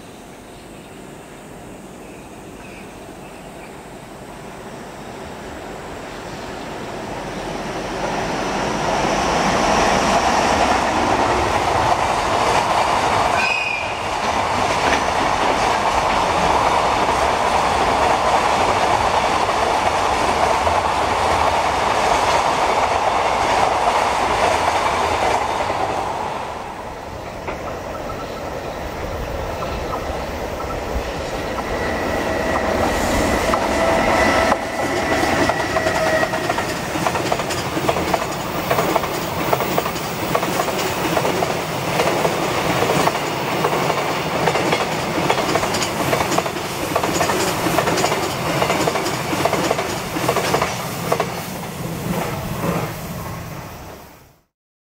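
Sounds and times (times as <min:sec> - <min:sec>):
train wheels clacking over rails: 0:07.4 - 0:53.0
train whistle horn: 0:13.3 - 0:14.1, 0:33.6 - 0:36.7.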